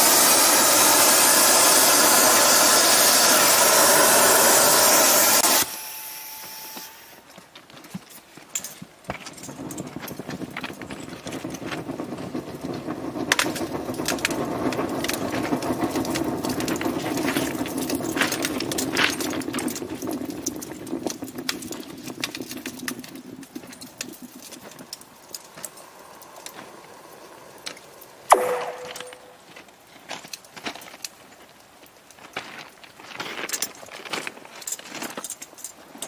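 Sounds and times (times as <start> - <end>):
thermite burning with rushing hiss: 0.0 - 5.7, 9.2 - 29.8
sudden loud burst: 28.3 - 29.4.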